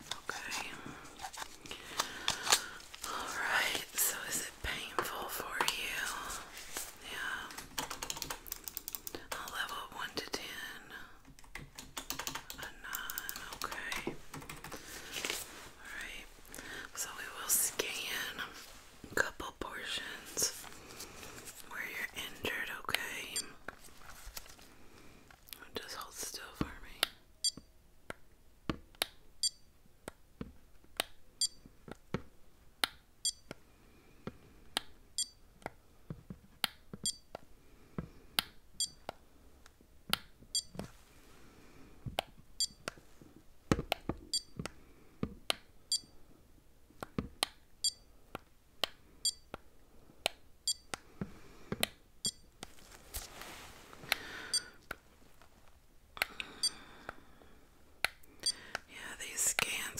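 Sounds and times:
soft rustle: 0.0 - 7.6, 14.1 - 22.5, 23.7 - 25.5, 52.6 - 54.1
sharp clicks: 11.4 - 14.7.

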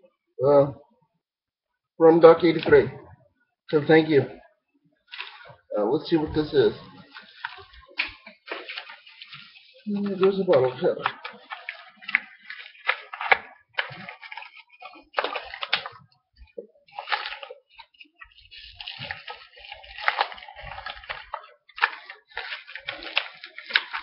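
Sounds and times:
packaging rustling and crinkling: 5.1 - 24.0.

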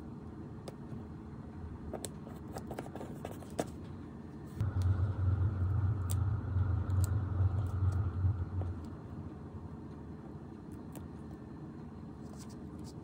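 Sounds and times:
low rumble: 4.6 - 9.9.

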